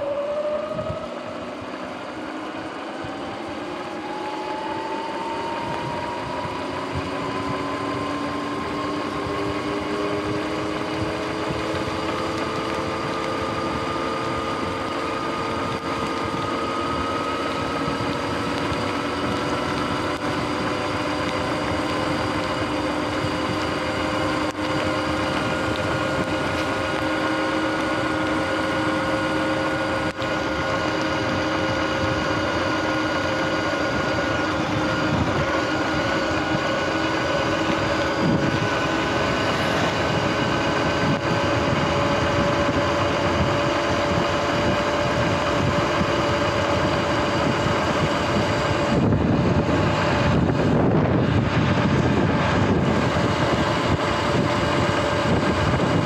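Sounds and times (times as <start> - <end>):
electric motorbike motor whining: 0.0 - 56.0
tyres hissing on wet pavement: 9.6 - 44.2.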